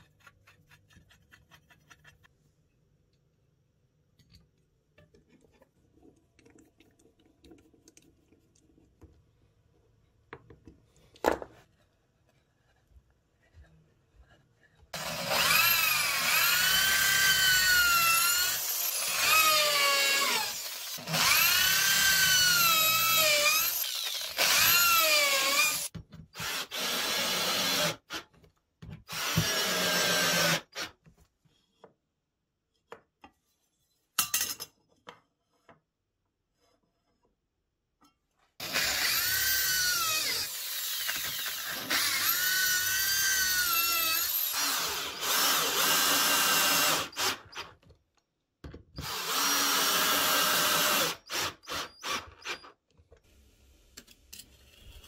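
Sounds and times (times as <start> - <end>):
cordless drill boring into wood: 15.0 - 28.2, 29.1 - 30.9, 38.6 - 47.7, 49.0 - 52.7.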